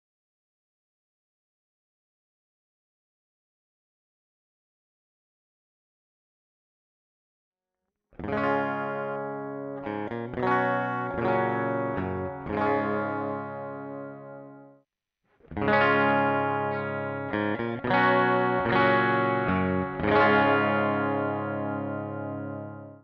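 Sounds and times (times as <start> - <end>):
electric guitar strumming chords: 8.2 - 14.6, 15.5 - 23.0.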